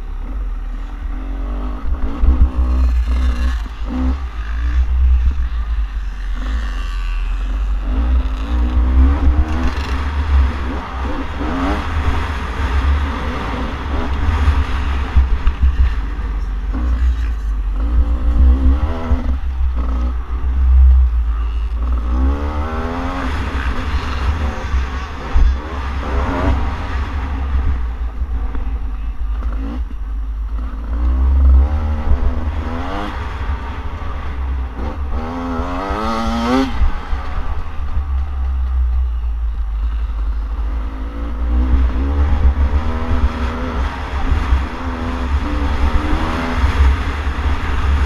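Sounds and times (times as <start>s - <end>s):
dirt bike engine revving: 1.2s - 27.8s, 34.2s - 38.2s.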